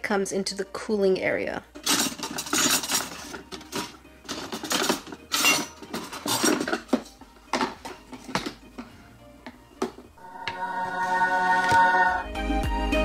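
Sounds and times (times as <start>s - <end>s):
metal pan scraping and clattering: 1.8s - 8.5s.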